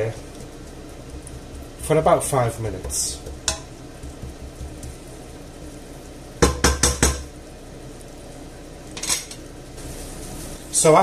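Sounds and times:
wooden spoon knocking on metal pot: 0:02.8 - 0:05.0, 0:06.4 - 0:07.3.

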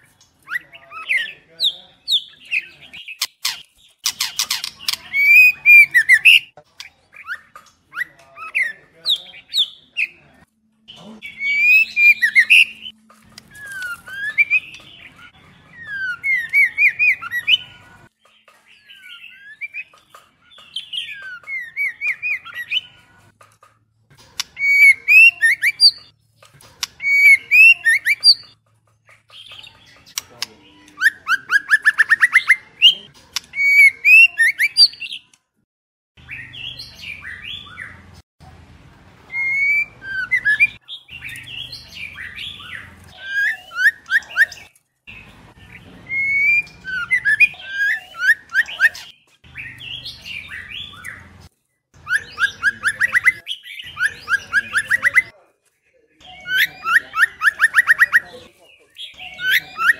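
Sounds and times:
bird trilling: 0:00.4 - 0:10.1, 0:10.9 - 0:17.8, 0:24.4 - 0:26.1, 0:26.8 - 0:28.6, 0:39.3 - 0:51.3, 0:52.0 - 0:55.3, 0:56.2 - 0:59.9
bird singing whistled notes: 0:45.7 - 0:51.3.

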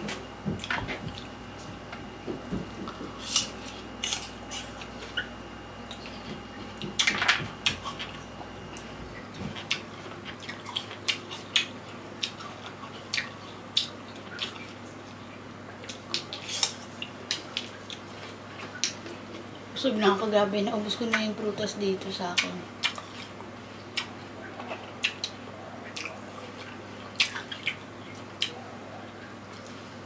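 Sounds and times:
wet chewing: 0:05.9 - 0:19.5, 0:22.4 - 0:29.8.

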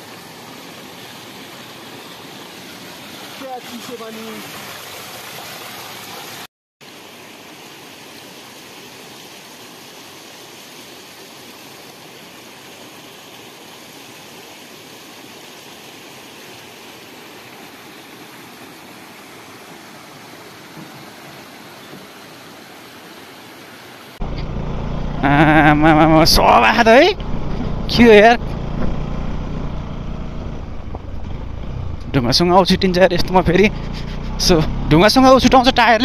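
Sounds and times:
stream splashing over rocks: 0:00.0 - 0:24.3, 0:30.6 - 0:36.0.

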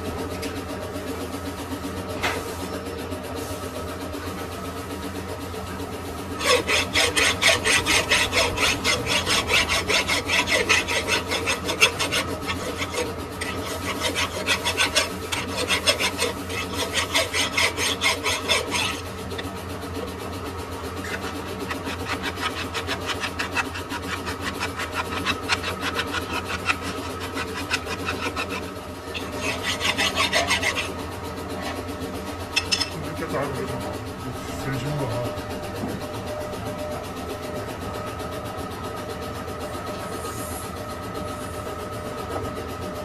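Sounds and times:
steady machine hum: 0:00.0 - 0:43.0
tool rasping metal: 0:06.2 - 0:19.6, 0:20.7 - 0:33.3.

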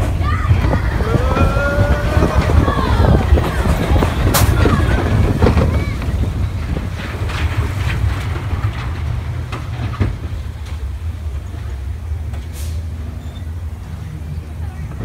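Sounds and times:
wheel clacks: 0:00.0 - 0:12.6
roller coaster cars rumbling on track: 0:00.0 - 0:15.0
short hiss: 0:12.5 - 0:13.0.

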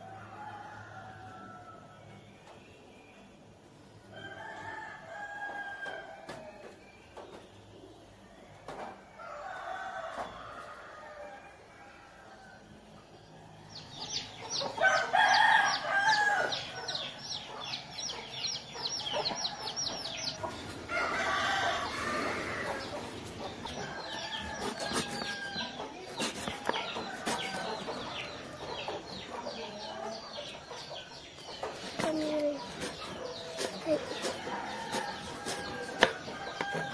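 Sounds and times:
chickens clucking: 0:13.7 - 0:36.9
rooster crowing: 0:14.8 - 0:17.0, 0:19.3 - 0:23.0, 0:23.7 - 0:27.9, 0:33.9 - 0:36.9.

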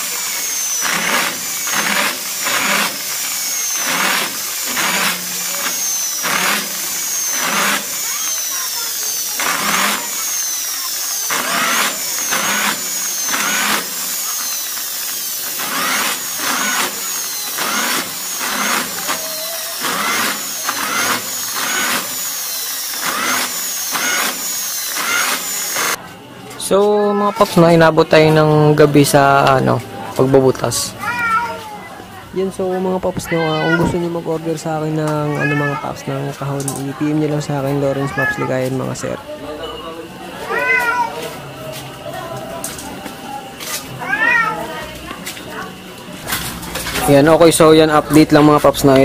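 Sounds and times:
electric drill boring sheet metal: 0:00.0 - 0:26.0.

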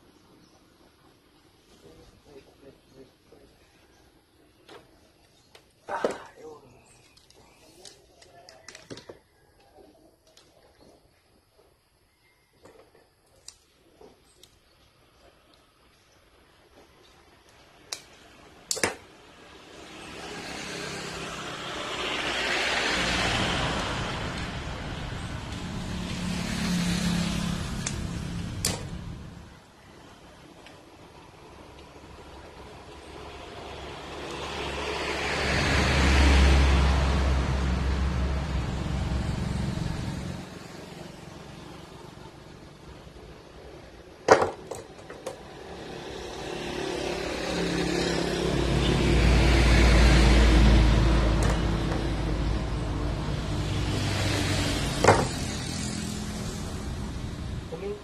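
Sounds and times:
scissors snipping wire: 0:18.7 - 0:19.0, 0:27.7 - 0:29.0
sharp click: 0:18.7 - 0:19.0
vehicle passing: 0:19.1 - 0:44.2, 0:45.4 - 0:58.0
low engine hum: 0:20.1 - 0:29.7, 0:31.1 - 0:43.9, 0:45.4 - 0:58.0.

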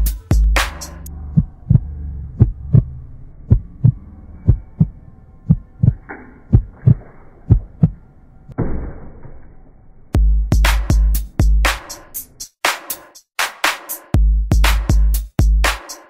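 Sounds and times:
music with deep bass beat: 0:00.0 - 0:08.0, 0:10.2 - 0:13.0, 0:13.8 - 0:16.0
heartbeat thumps: 0:01.3 - 0:08.0, 0:10.2 - 0:11.8.

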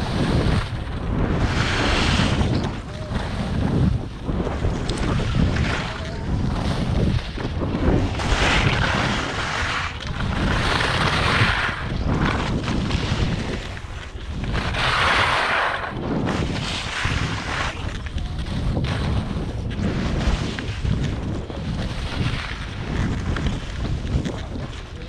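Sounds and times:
wind buffeting microphone: 0:00.0 - 0:25.0
skis hissing over snow: 0:01.4 - 0:02.4, 0:08.1 - 0:12.4, 0:14.6 - 0:17.9.

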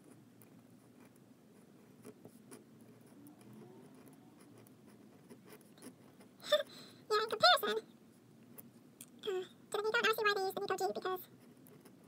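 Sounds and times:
fountain pen scratching on paper: 0:00.0 - 0:06.4, 0:11.3 - 0:12.0.

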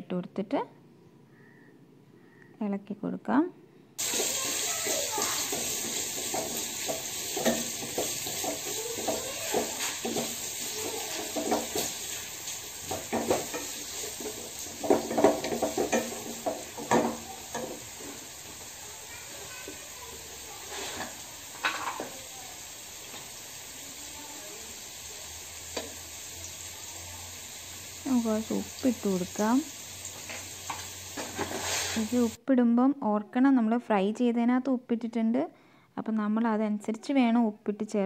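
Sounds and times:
wooden spatula scraping a pan: 0:04.0 - 0:22.2, 0:30.0 - 0:32.4
onions sizzling in oil: 0:04.0 - 0:32.4.

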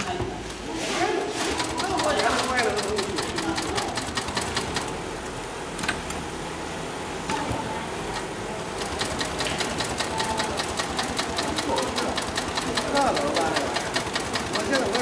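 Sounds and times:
sewing machine clicks: 0:01.5 - 0:04.9, 0:08.1 - 0:15.0
sewing machine stitching: 0:01.5 - 0:04.9, 0:08.2 - 0:15.0.

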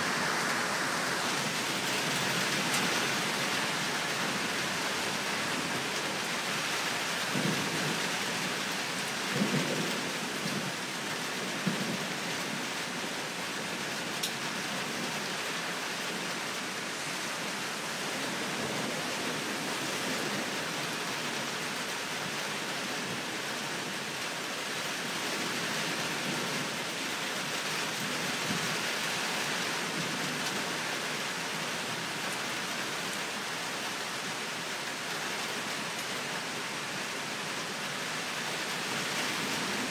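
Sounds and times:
steady rain falling: 0:00.0 - 0:39.9
low rumbles of thunder: 0:07.3 - 0:08.1.

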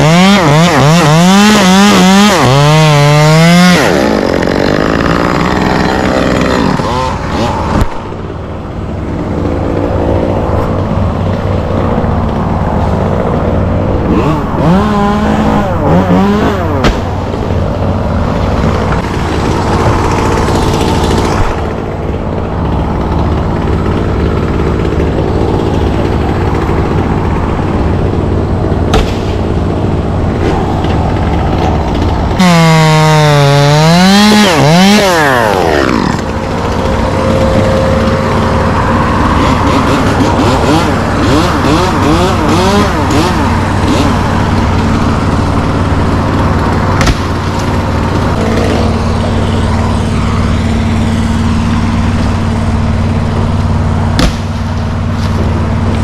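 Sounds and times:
chainsaw revving: 0:00.0 - 0:08.2, 0:09.2 - 0:56.0.

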